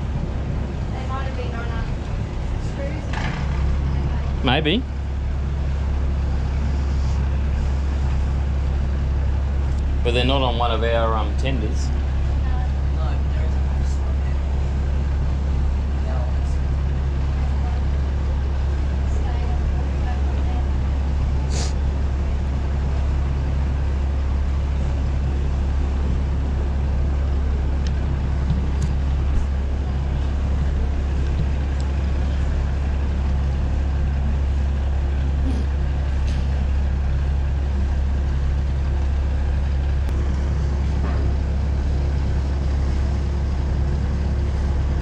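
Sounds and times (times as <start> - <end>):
marine engine humming: 0.0 - 45.0.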